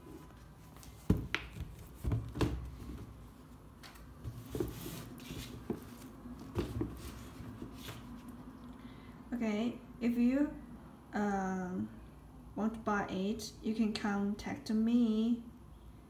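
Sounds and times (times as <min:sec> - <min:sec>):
shoes knocking on cardboard box: 0:01.0 - 0:03.2, 0:04.2 - 0:07.8.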